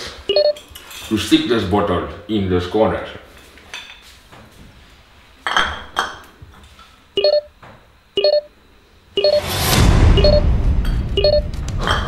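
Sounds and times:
short electronic beeps: 0.3 - 0.6, 7.2 - 7.5, 8.2 - 8.5, 9.2 - 10.5, 11.2 - 11.5.

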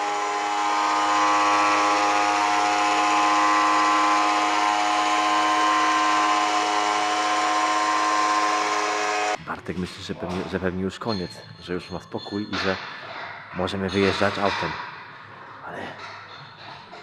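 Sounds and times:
electric winch motor whine: 0.0 - 9.4.

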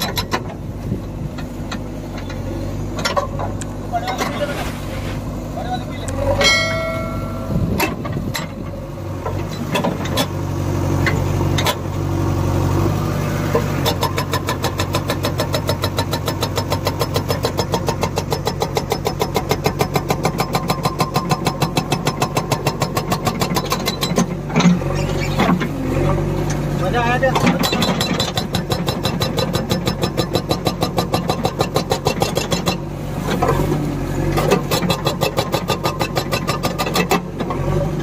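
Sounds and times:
diesel engine running: 0.0 - 38.0
hydraulic breaker hammering rock: 13.5 - 24.8, 27.2 - 32.8, 34.4 - 37.4.

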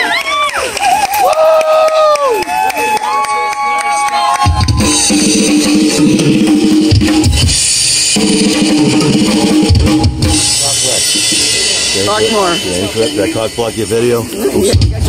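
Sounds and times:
rock drumming on drum kit: 4.4 - 15.0
heavy bass drum hits: 4.6 - 13.0
sustained amplified chords: 4.7 - 15.0
cymbals washing: 4.8 - 15.0.

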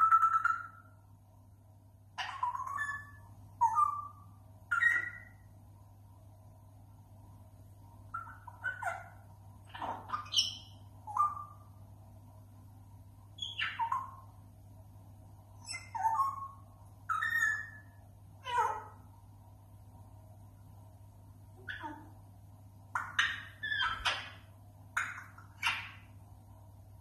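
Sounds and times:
parrot whistles and squawks: 0.0 - 1.0, 2.2 - 5.4, 8.1 - 11.7, 13.4 - 14.3, 15.6 - 19.0, 21.6 - 22.1, 22.9 - 26.1.

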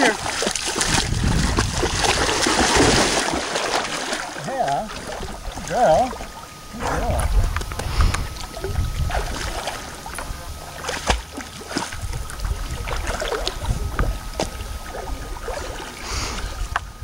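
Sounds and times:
dog splashing in water: 0.0 - 5.7, 9.0 - 13.7
low rumble: 6.7 - 10.7.

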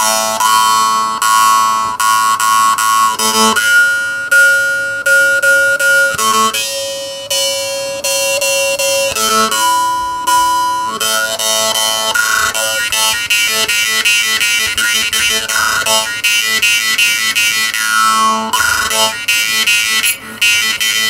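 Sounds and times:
jaw harp melody: 0.0 - 21.0.

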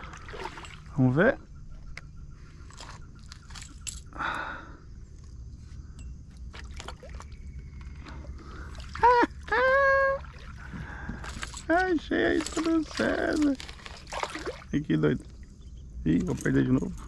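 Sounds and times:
water splash: 0.0 - 0.9, 12.4 - 14.7.

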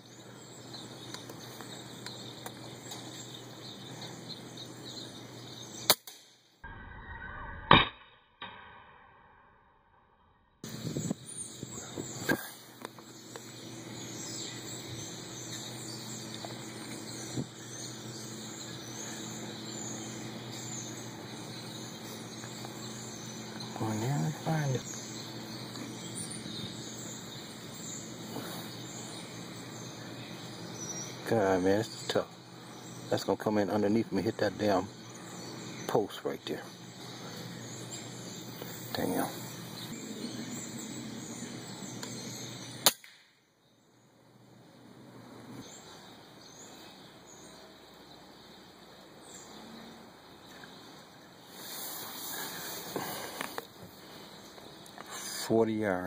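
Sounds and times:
outdoor background noise: 0.0 - 56.0
faint bird chirps: 10.6 - 44.6.

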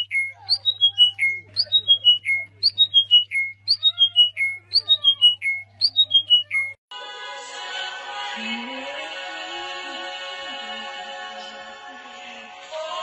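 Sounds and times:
songbird singing: 0.0 - 6.8.

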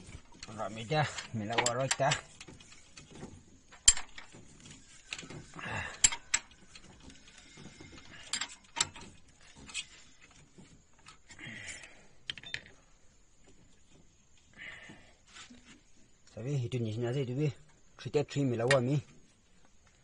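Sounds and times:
metallic clicks and knocks of hand tools: 0.4 - 4.4, 5.1 - 7.0, 8.2 - 9.1
short scraping noises: 15.2 - 15.9.

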